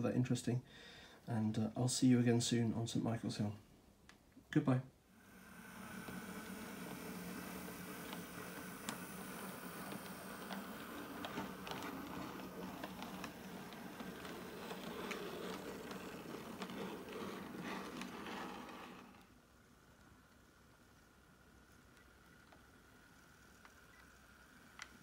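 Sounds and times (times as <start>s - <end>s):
model train motor whirring: 5.2s - 19.4s
wheels clicking over rail joints: 5.9s - 19.3s.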